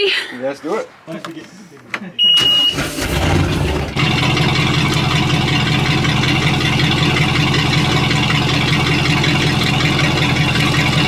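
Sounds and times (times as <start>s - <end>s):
boat engine idling: 3.4s - 11.0s.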